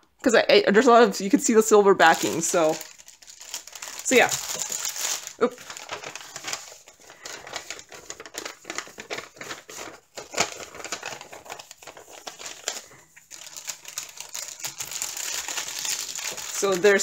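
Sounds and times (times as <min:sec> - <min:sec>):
plastic and paper crinkling: 0:02.0 - 0:17.0
small crackles and clicks: 0:02.3 - 0:17.0.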